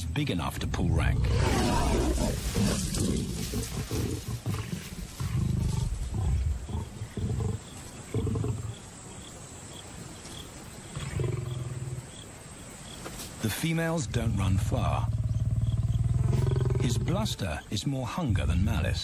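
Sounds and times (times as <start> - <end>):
lions growling: 0.7 - 8.9, 10.9 - 12.2, 14.2 - 17.4.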